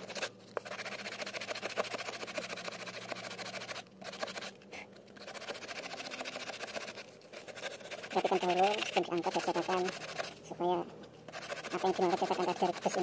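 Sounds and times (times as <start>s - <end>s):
hand tool scraping fibreglass: 11.3s - 13.0s.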